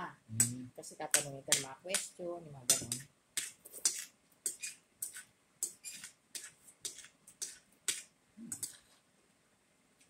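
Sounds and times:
spoon and fork on plate: 2.7s - 8.9s.

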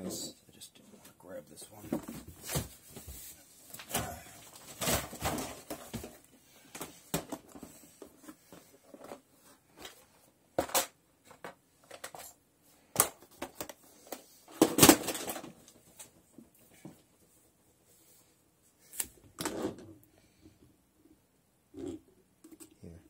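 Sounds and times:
objects knocking and clattering: 1.8s - 3.1s, 3.8s - 17.0s.

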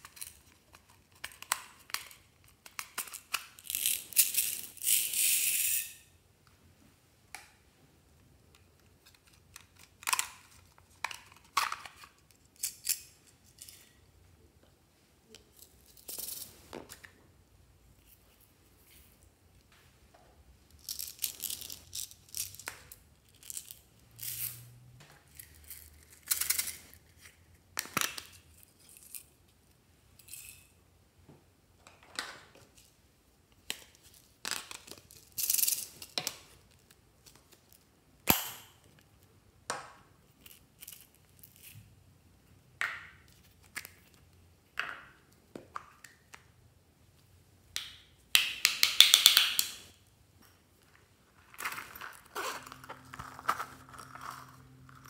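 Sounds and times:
plastic toys rustling and crinkling: 20.7s - 24.6s, 50.9s - 55.0s.

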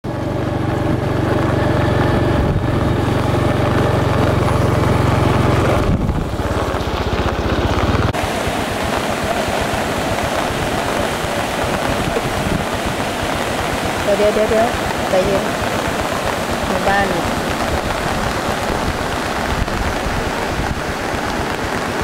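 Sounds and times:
floodwater rushing: 0.0s - 22.0s
motorcycle engine idling: 0.1s - 21.2s.

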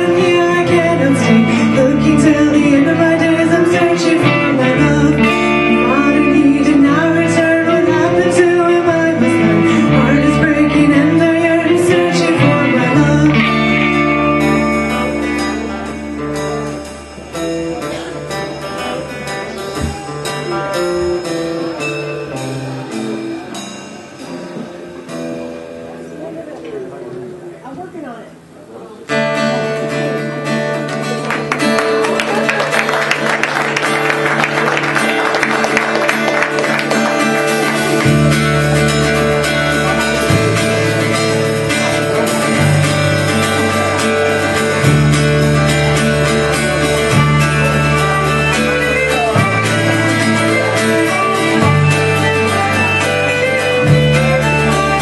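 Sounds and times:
electric bass: 0.0s - 23.4s, 33.2s - 55.0s
celtic-style band playing: 0.0s - 55.0s
strummed acoustic guitar: 0.0s - 55.0s
fiddle: 32.7s - 55.0s.

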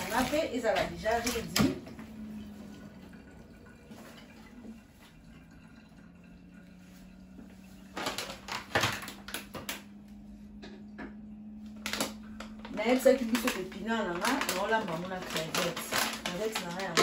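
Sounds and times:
steady low hum: 9.2s - 14.2s.

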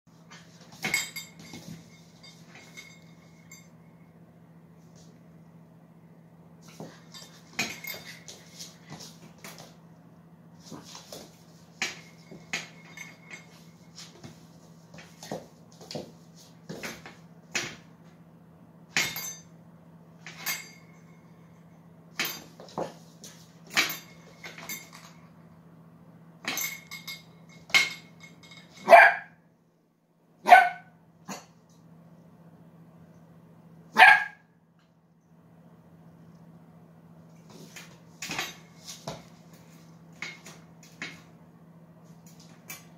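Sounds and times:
puppy barking: 28.8s - 29.4s, 30.4s - 31.5s, 33.9s - 34.5s.

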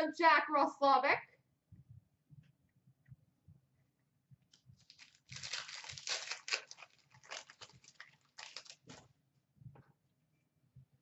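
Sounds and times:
foil wrapper crinkling torn open: 4.8s - 9.1s.

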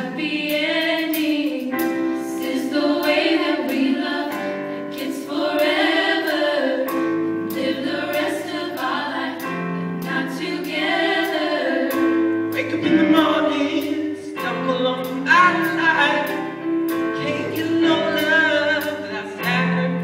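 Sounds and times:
choir singing in harmony: 0.0s - 20.0s.

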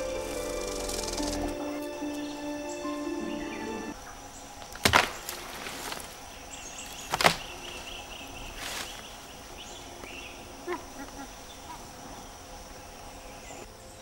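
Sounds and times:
rapid chirping call: 0.0s - 4.0s
high insect drone: 0.0s - 14.0s.

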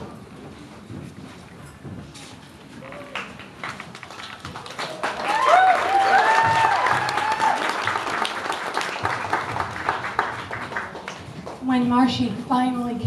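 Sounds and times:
audience clapping and cheering: 2.8s - 11.7s
whoops and shouts: 5.1s - 7.8s.

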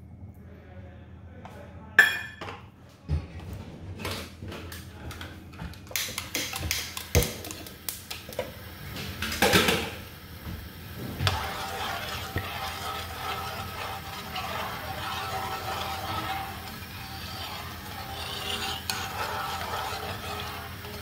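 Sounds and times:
kitchen utensils clicking and knocking: 5.7s - 8.5s, 11.2s - 21.0s
metal spoon stirring sauce: 5.9s - 7.7s, 11.1s - 21.0s
sauce simmering with a hiss: 6.0s - 21.0s.

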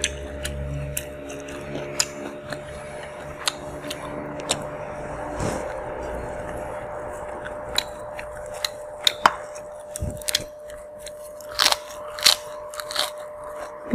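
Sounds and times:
faint steady hum: 0.0s - 13.9s
person chewing: 0.0s - 13.9s
clicks and crunches on metal tray: 7.7s - 13.8s.

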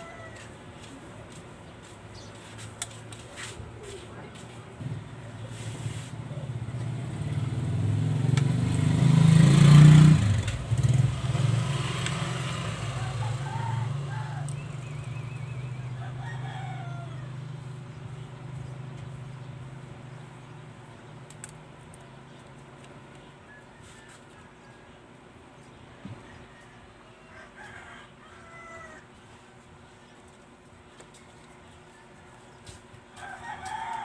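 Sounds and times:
rooster crowing: 0.0s - 0.6s, 12.6s - 17.8s, 26.2s - 29.3s, 33.2s - 34.0s
vehicle engine passing: 4.8s - 21.3s.

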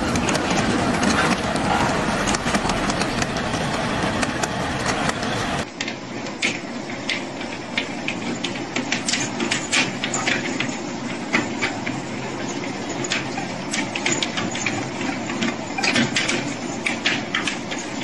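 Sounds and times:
model train rumbling on track: 0.0s - 18.0s
wheels clicking on rails: 0.0s - 18.0s.

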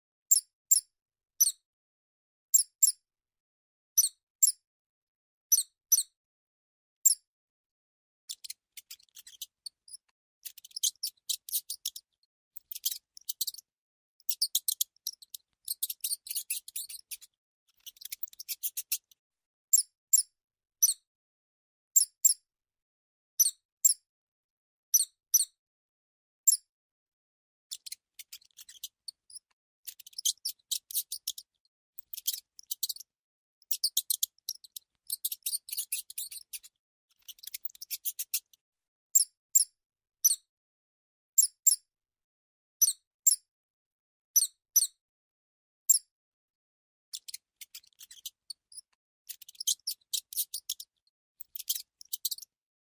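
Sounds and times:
mouse squeaks: 0.3s - 1.6s, 2.5s - 3.0s, 4.0s - 4.6s, 5.5s - 6.2s, 7.0s - 7.3s, 8.3s - 21.1s, 21.9s - 22.4s, 23.4s - 24.1s, 24.9s - 25.6s, 26.4s - 26.7s, 27.7s - 40.5s, 41.4s - 41.9s, 42.8s - 43.5s, 44.4s - 45.0s, 45.9s - 46.1s, 47.1s - 52.6s.

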